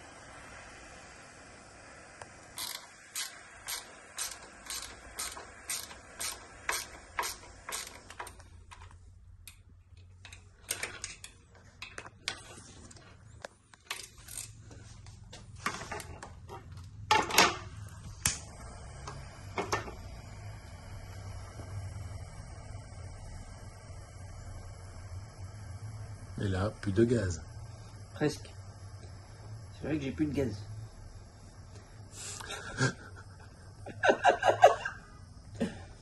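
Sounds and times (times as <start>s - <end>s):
hand ratchet clicking: 2.6s - 8.9s, 13.9s - 14.6s.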